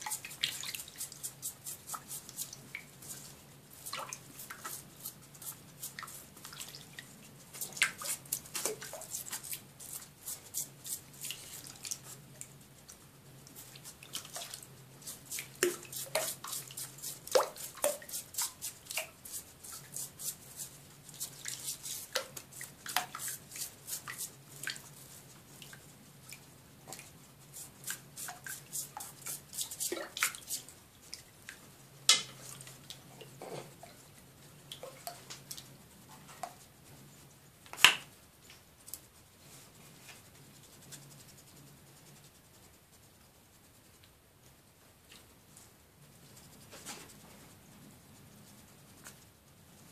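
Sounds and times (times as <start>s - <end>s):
water dripping: 15.3s - 19.2s, 21.4s - 24.9s
water splashing in tub: 17.3s - 19.1s.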